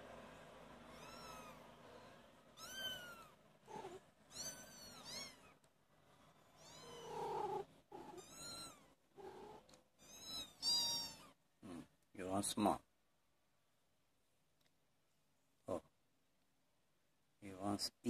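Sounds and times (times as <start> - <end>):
kittens mewing: 0.9 - 5.6, 6.5 - 11.8.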